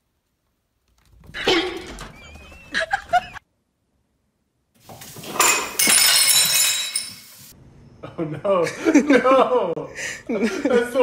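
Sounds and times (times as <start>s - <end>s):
glass shattering crash: 5.3s - 7.3s.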